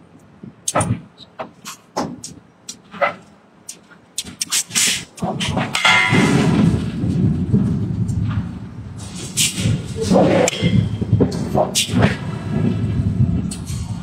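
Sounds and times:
dense low rumble: 6.1 - 14.0.

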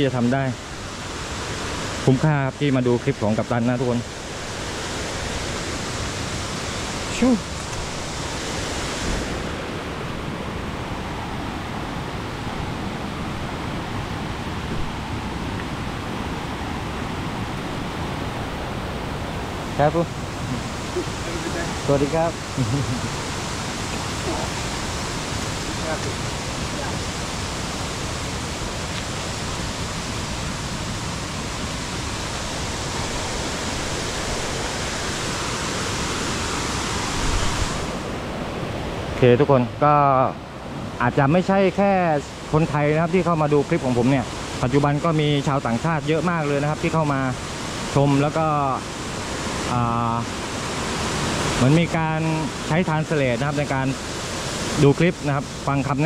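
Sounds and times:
waterfall roaring: 0.0 - 56.0.

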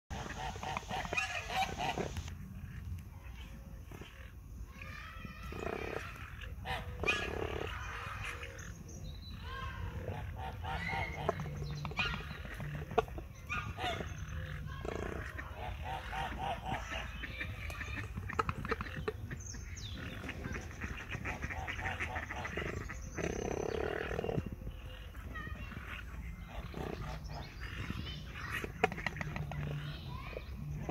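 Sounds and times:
cranes calling: 0.1 - 5.0.

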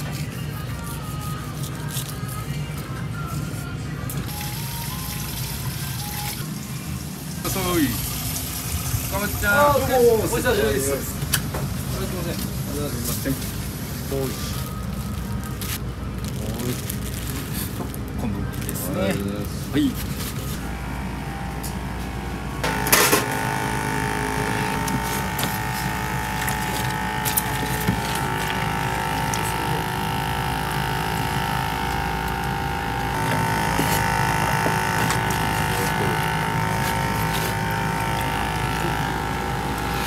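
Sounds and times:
kitchen equipment hum: 0.0 - 40.0
mid-pitched whine: 18.2 - 40.0.

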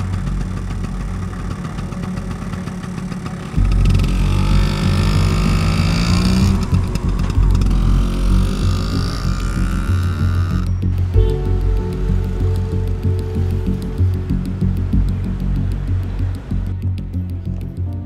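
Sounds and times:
scooter engine revving: 0.0 - 11.3.

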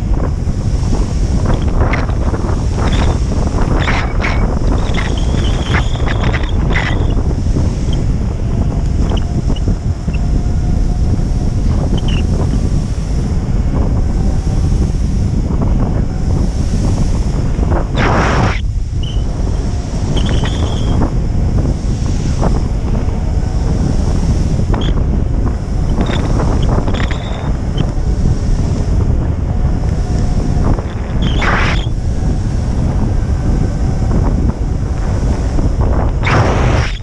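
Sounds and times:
wind buffeting microphone: 0.0 - 37.0.

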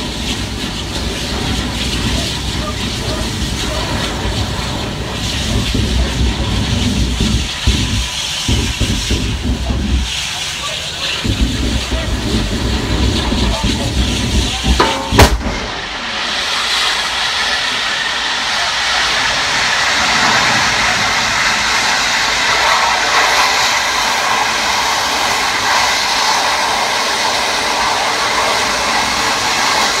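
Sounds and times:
jet of flame hissing: 0.0 - 30.0
sharp bang: 11.2 - 18.0.

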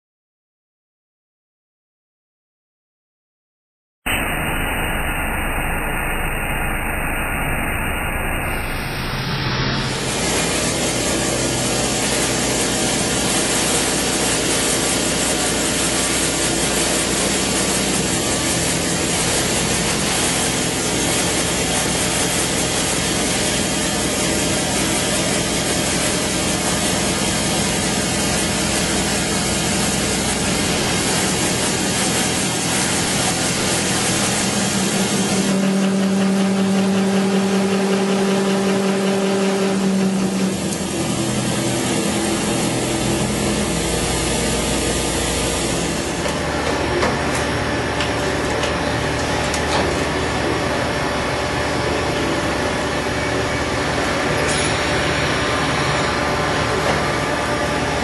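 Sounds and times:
spindle hum: 4.1 - 58.0
milling machine cutting: 9.2 - 58.0.

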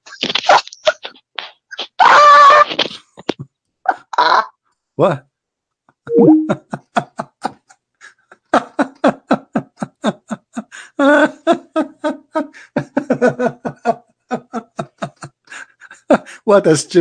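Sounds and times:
man laughing hard: 6.5 - 16.5.

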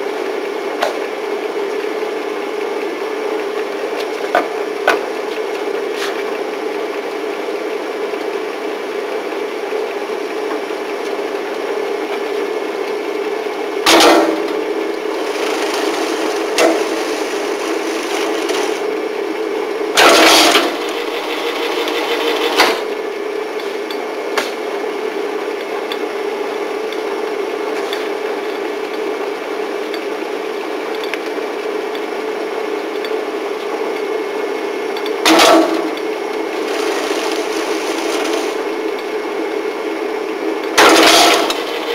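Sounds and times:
binding machine motor hum: 9.8 - 24.2, 35.0 - 41.9
binding machine clatters: 15.2 - 18.9, 20.0 - 22.9, 36.6 - 38.7, 40.8 - 41.9.

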